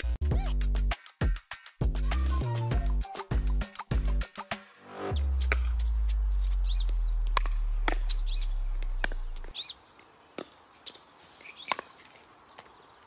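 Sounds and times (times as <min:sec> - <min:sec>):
deep bass note: 0:05.0 - 0:09.5
birds chirping: 0:06.2 - 0:13.0
paddles hitting plastic ball: 0:11.4 - 0:12.8.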